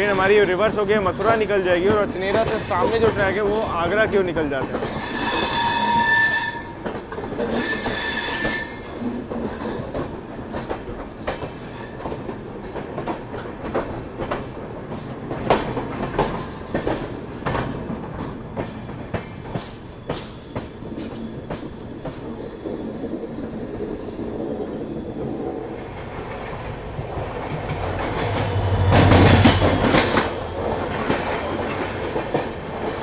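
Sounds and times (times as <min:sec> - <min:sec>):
train rolling rumble: 0:00.0 - 0:06.1, 0:06.7 - 0:33.0
wheels clacking over rail joints: 0:00.0 - 0:06.1, 0:06.8 - 0:33.0
train wheels squealing: 0:04.8 - 0:06.8, 0:07.4 - 0:09.9.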